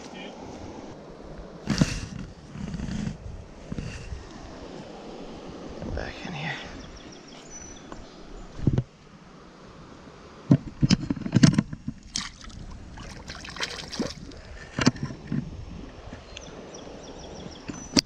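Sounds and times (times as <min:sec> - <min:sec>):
water splashing: 0:11.8 - 0:15.1.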